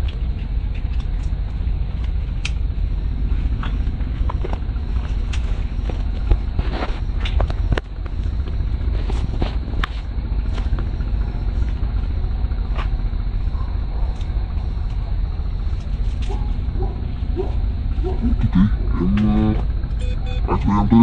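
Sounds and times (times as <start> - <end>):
sharp clicks and snaps: 0.0 - 1.4, 2.0 - 2.6.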